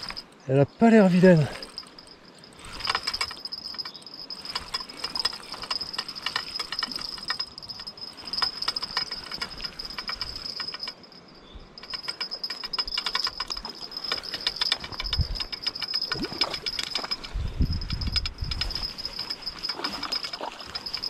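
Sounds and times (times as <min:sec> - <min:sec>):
fishing reel ticking: 0:00.0 - 0:00.4, 0:01.2 - 0:21.0
high insect chirring: 0:01.0 - 0:21.0.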